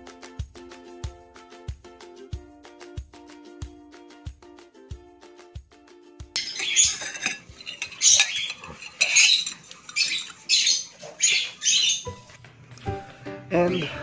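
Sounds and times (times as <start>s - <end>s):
fork scraping glass bowl: 6.4s - 12.0s.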